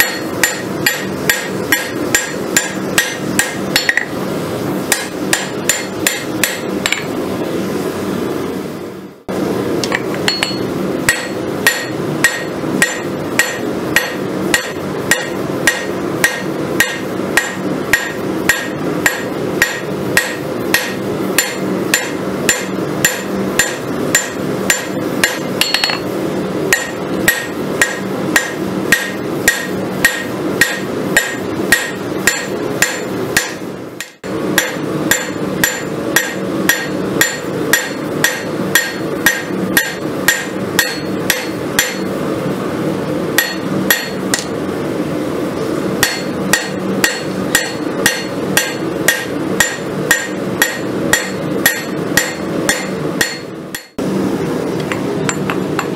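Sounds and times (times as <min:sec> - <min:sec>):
hammer striking steel on anvil: 0:00.0 - 0:04.2, 0:04.9 - 0:07.1, 0:09.8 - 0:26.1, 0:26.7 - 0:42.2, 0:43.4 - 0:44.6, 0:46.0 - 0:54.0.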